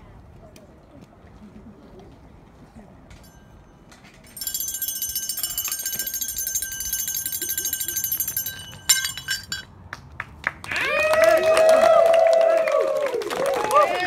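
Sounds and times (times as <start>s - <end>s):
rapid metallic rattling: 4.3s - 9.7s.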